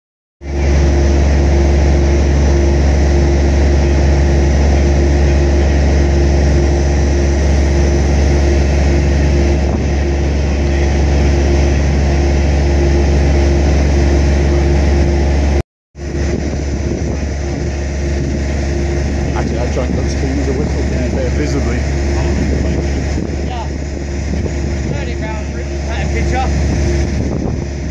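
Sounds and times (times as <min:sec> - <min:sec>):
constant hum: 0:00.4 - 0:27.9
heavy diesel engine rumble: 0:00.4 - 0:27.9.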